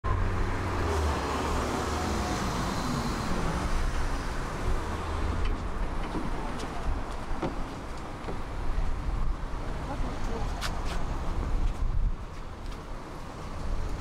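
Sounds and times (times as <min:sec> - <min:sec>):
tram rumble: 0:00.0 - 0:14.0.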